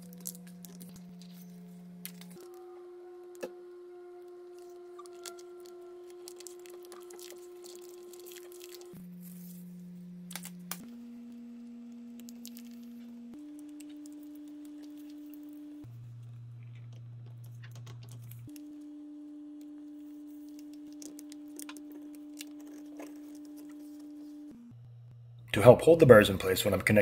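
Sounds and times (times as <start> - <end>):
soft music of pure tones: 0.0 - 27.0.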